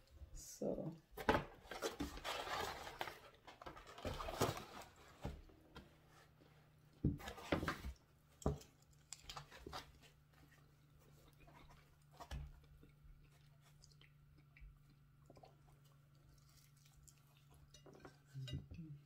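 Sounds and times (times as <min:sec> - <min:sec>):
cardboard rustling and scraping: 0:01.2 - 0:06.4, 0:07.1 - 0:08.0.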